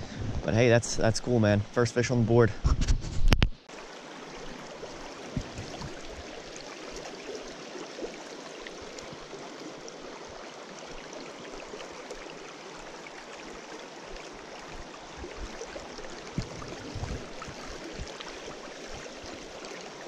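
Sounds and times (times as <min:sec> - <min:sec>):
stream water over rocks: 0:03.6 - 0:20.0.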